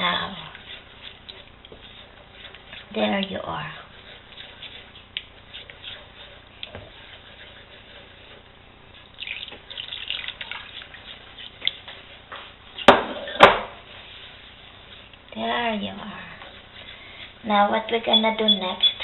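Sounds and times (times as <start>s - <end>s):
wooden spoon stirring and scraping: 0.0s - 19.0s
liquid splashing trickle: 9.2s - 10.9s.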